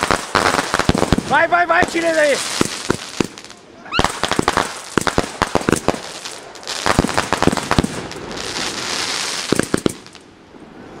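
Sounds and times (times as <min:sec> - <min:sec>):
fireworks bangs: 0:00.0 - 0:10.3
fireworks crackling hiss: 0:00.0 - 0:10.4.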